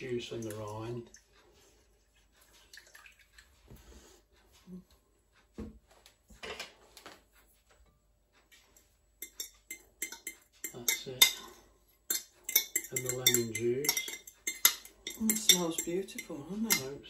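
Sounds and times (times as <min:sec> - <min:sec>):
spoon tapping and scraping bowl: 0:08.4 - 0:17.0.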